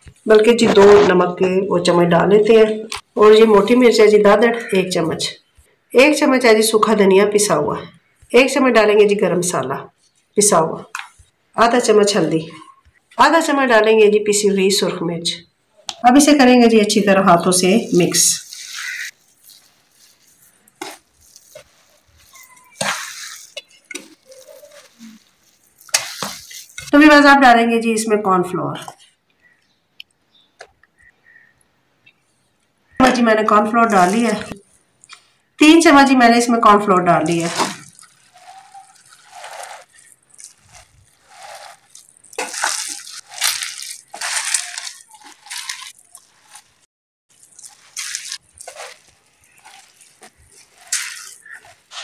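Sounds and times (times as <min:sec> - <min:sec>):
hands squishing meat mixture: 0:17.4 - 0:27.0, 0:33.5 - 0:52.0.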